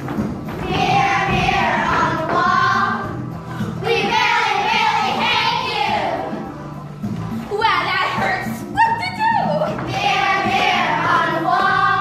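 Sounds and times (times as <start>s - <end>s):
musical accompaniment: 0.0s - 12.0s
children singing: 0.5s - 6.5s, 9.8s - 12.0s.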